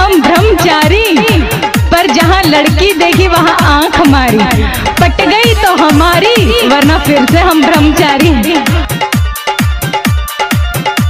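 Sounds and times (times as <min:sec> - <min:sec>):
electronic dance beat: 0:00.3 - 0:09.2
repeating synth note: 0:04.0 - 0:07.0.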